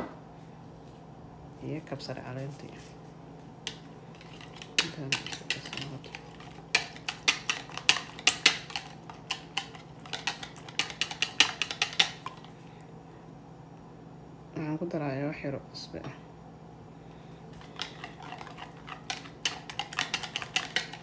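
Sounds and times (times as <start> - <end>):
whisk clicking in plastic jug: 3.7 - 12.5, 17.6 - 21.0.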